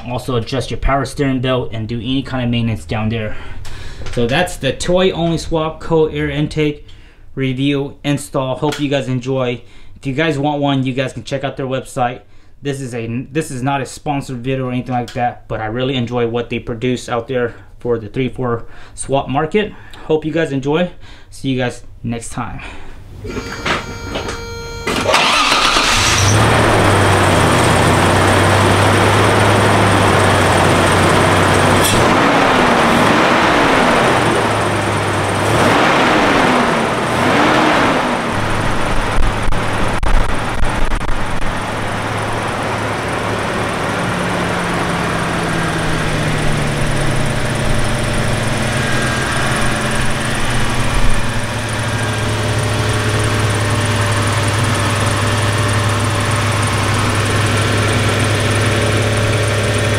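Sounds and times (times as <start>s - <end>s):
car engine idling: 23.3s - 59.9s.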